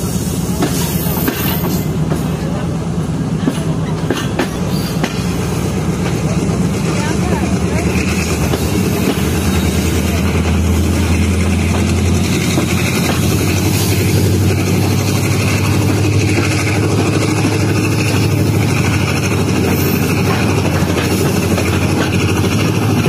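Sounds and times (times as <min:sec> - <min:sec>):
train coaches rumbling: 0:00.0 - 0:23.0
diesel engine drone: 0:05.5 - 0:23.0.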